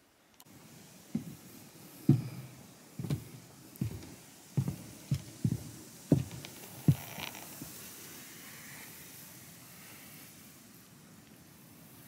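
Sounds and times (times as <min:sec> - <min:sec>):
footsteps on wooden steps: 0:01.0 - 0:07.8.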